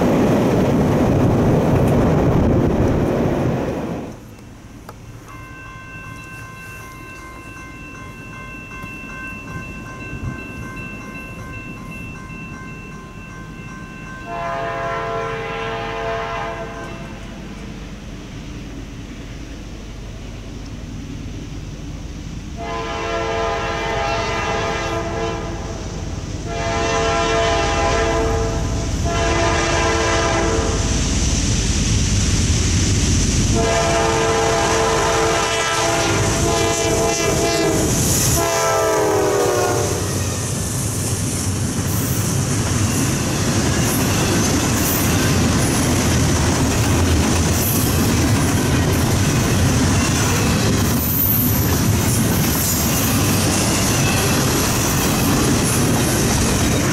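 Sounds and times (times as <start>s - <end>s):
train wheels clattering and rumbling: 0.0s - 5.0s, 40.0s - 56.9s
locomotive horn blasts: 14.3s - 17.2s, 22.6s - 25.8s, 26.5s - 30.8s, 33.6s - 40.1s.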